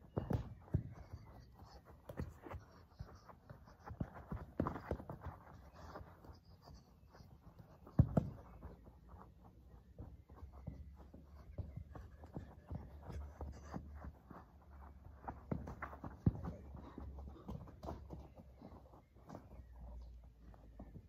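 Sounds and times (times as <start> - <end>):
football being kicked: 0.1 - 0.9, 7.9 - 8.5.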